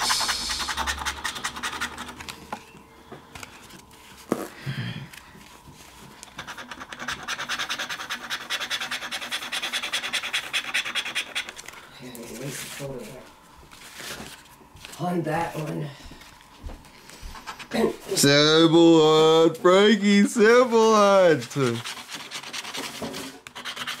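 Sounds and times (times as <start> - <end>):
scratching lottery ticket: 0.0 - 2.4, 6.2 - 13.2, 20.4 - 24.0.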